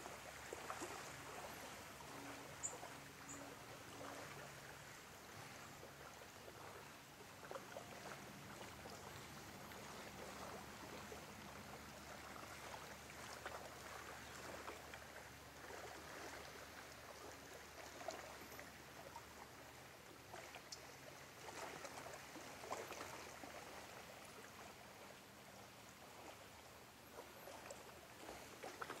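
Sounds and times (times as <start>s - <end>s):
wavelets lapping at shore: 0.0s - 29.0s.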